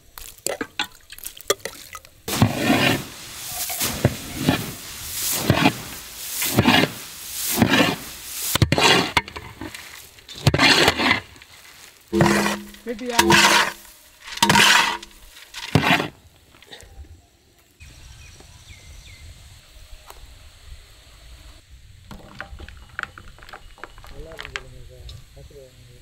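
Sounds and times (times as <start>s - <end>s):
dry rustling swishes of puffed rice: 2.3s - 16.2s.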